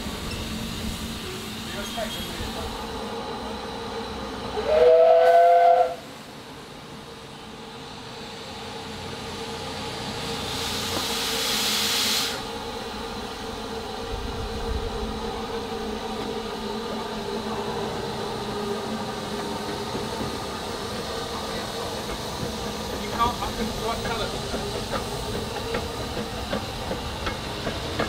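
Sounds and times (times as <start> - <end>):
loud hiss of steam: 0.0 - 6.4, 7.8 - 28.0
steam train running slowly: 0.0 - 28.0.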